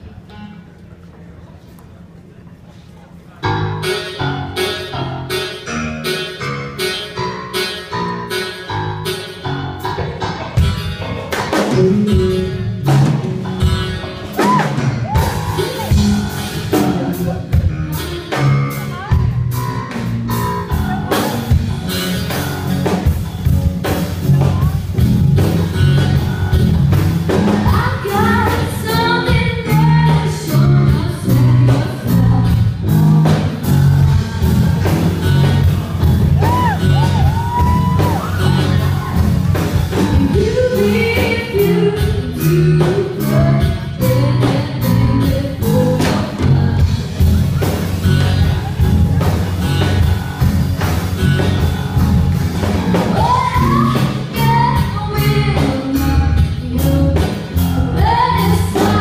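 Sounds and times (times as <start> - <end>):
live rock band playing: 3.4 - 59.0
woman singing: 27.6 - 32.8, 40.2 - 46.9, 53.1 - 59.0.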